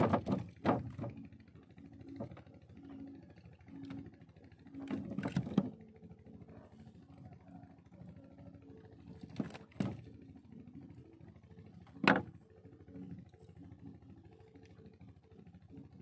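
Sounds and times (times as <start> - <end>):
knocks inside a boat: 0.0 - 1.3, 12.0 - 12.4.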